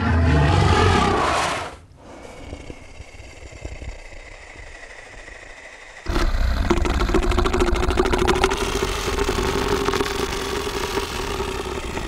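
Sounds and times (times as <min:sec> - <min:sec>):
deep rumbling dinosaur roar: 0:00.0 - 0:12.0.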